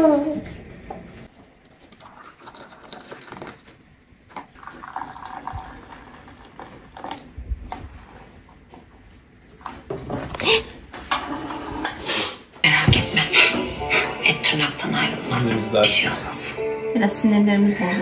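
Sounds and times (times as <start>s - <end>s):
hot water pouring into glass: 1.6s - 8.2s.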